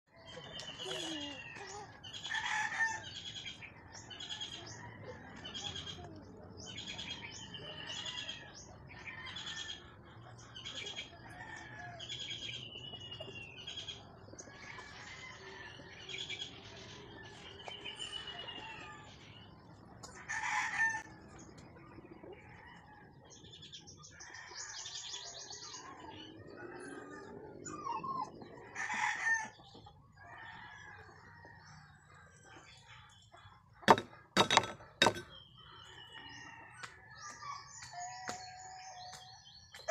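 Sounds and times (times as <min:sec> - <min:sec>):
birds chirping: 0:00.1 - 0:39.9.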